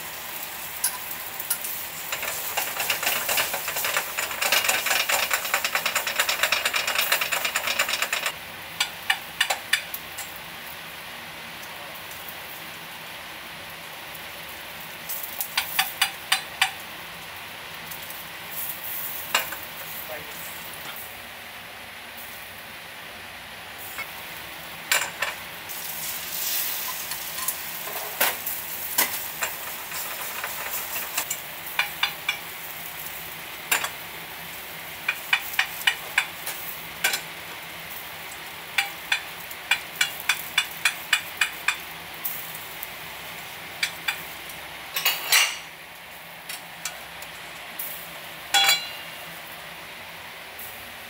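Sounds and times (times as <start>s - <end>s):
egg sizzling in a pan: 0.0s - 51.0s
chopsticks tapping a pan: 0.8s - 10.3s, 15.6s - 16.8s, 29.0s - 32.5s, 35.1s - 37.2s, 38.8s - 41.8s, 48.5s - 49.0s.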